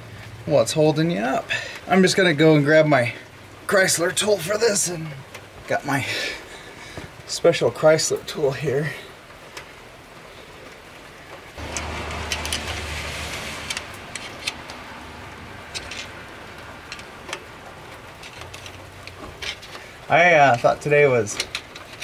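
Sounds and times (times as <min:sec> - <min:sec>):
rain hiss: 0:00.0 - 0:22.0.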